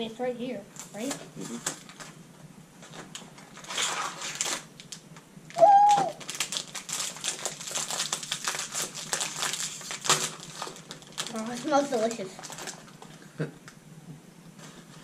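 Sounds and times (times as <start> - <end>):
plastic wrapper crackling: 2.8 - 13.2.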